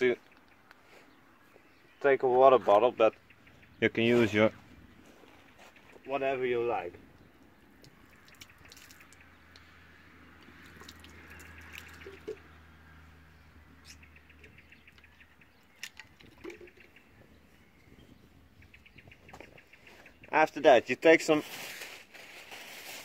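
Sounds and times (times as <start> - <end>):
water trickling and dripping: 7.2 - 13.0.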